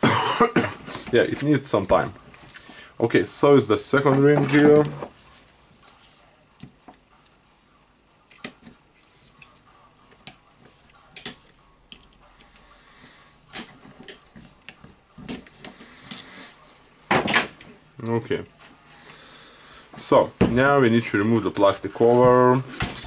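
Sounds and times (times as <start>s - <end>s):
metal pliers clicking and tapping: 11.1s - 12.5s.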